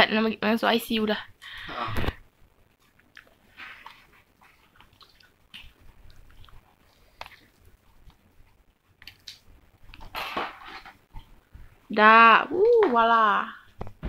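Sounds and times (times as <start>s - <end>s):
chewing noodles: 2.8s - 10.1s.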